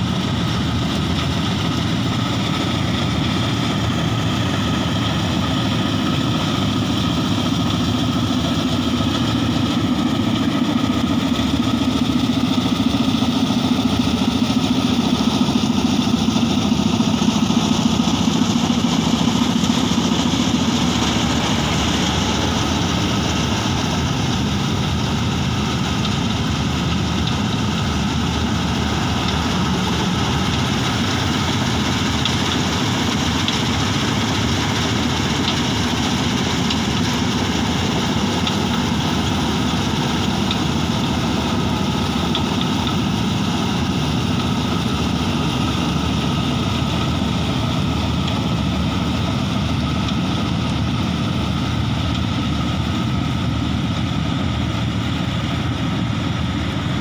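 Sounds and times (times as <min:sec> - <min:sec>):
combine harvester running: 0:00.0 - 0:57.0.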